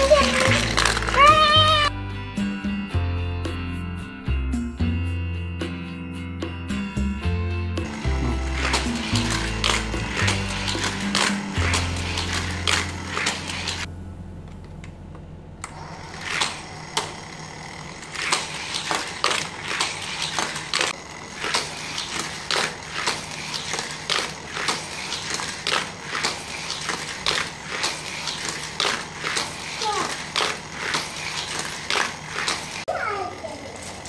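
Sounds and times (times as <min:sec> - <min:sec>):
toy cars clattering on track: 0:00.0 - 0:01.9, 0:07.8 - 0:13.9, 0:15.7 - 0:34.0.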